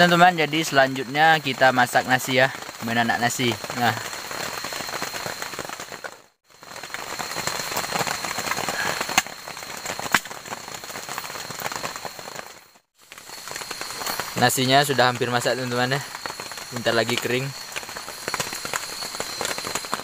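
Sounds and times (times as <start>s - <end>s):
steady rain: 0.0s - 20.0s
sharp pops and ticks: 6.8s - 12.4s, 13.0s - 20.0s.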